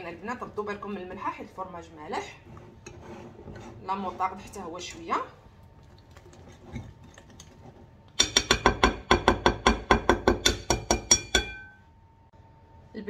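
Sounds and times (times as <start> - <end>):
wire whisk clinking in glass bowl: 10.4 - 11.8.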